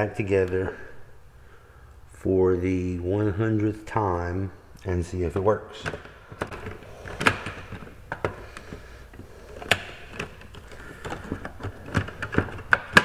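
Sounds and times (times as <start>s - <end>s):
hard plastic parts clicking: 5.4s - 13.0s.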